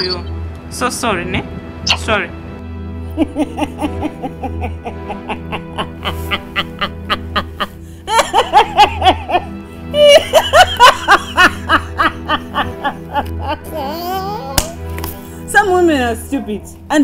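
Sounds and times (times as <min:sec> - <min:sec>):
background music with steady beat: 0:00.0 - 0:17.0
woman laughing gleefully: 0:03.1 - 0:13.8.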